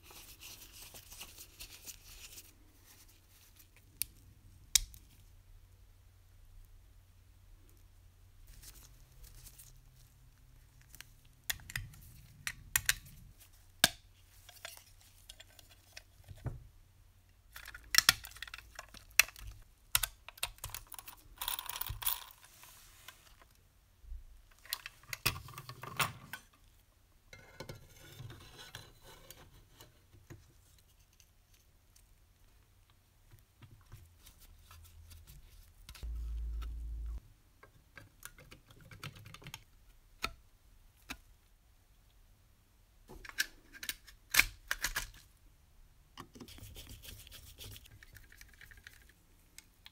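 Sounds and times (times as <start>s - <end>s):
small metal parts clicking and scraping: 17.5s - 23.4s.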